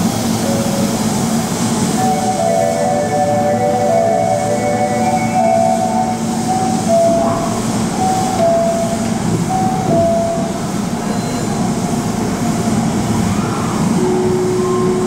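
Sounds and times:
standing train humming: 0.0 - 15.0
train electric horn tone: 2.0 - 7.5.

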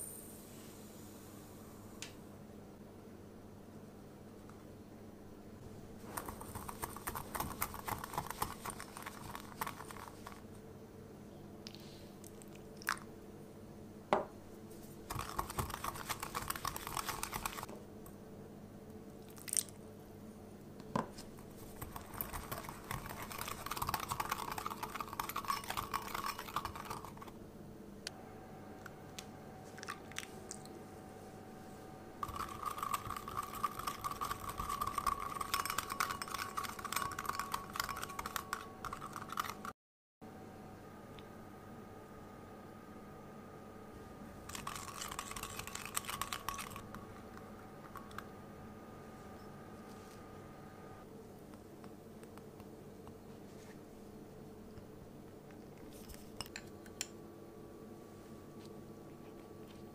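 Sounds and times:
whisk clicking against glass bowl: 15.1 - 17.7, 21.8 - 27.3, 32.2 - 39.6
whisk clinks: 22.0 - 27.3, 32.2 - 39.6.

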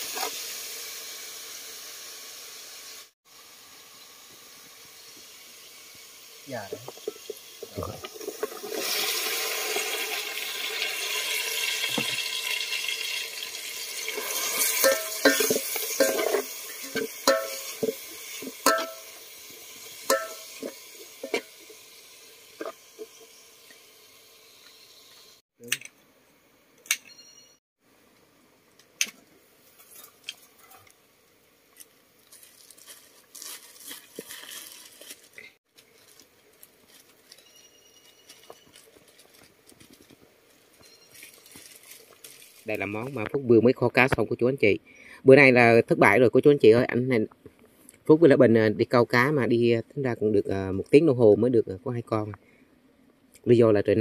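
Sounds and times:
sizzling hiss in a pot: 0.0 - 25.4, 27.8 - 44.2
utensil clinking against metal pot: 14.1 - 19.2, 20.0 - 21.5.

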